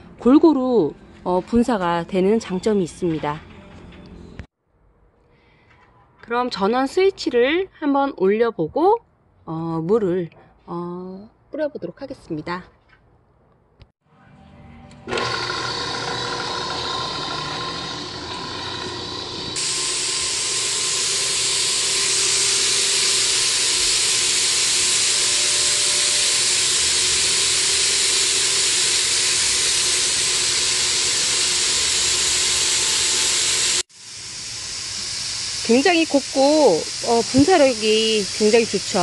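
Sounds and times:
power sprayer motor humming: 0:15.0 - 0:39.0
hiss of water mist spray: 0:33.4 - 0:39.0.

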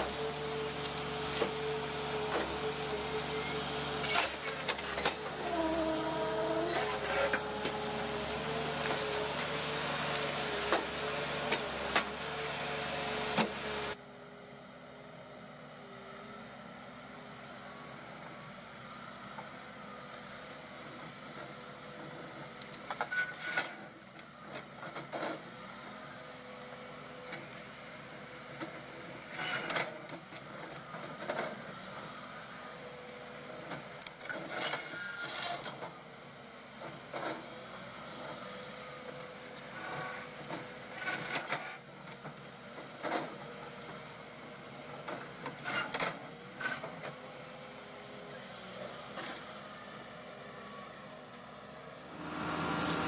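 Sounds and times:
low machine hum: 0:52.1 - 0:53.0.

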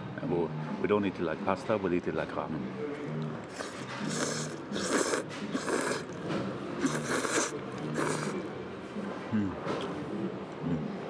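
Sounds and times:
person slurping noodles: 0:03.5 - 0:06.2, 0:06.8 - 0:08.5.

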